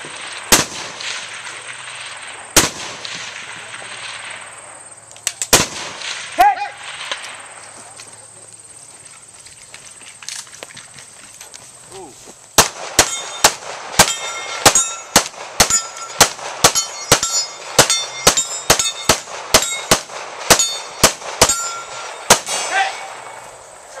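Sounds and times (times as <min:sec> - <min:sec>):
rapid gunfire: 0:12.6 - 0:23.0
steel plate ringing: 0:13.0 - 0:23.2.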